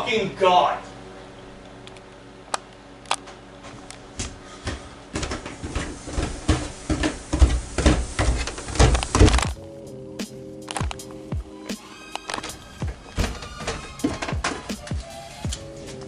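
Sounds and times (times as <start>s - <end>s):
footsteps coming down stairs: 3.3s - 9.6s, 10.8s - 16.0s.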